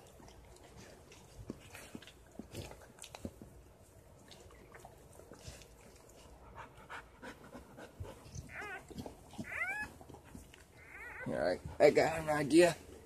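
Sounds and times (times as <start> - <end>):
puppy squeaking: 8.2 - 10.0, 10.8 - 11.6.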